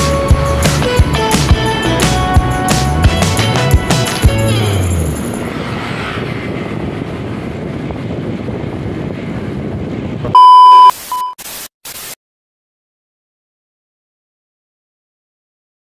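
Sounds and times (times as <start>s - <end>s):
music: 0.0s - 5.2s
wind and road noise: 0.0s - 11.2s
electronic beeps: 10.4s - 11.4s.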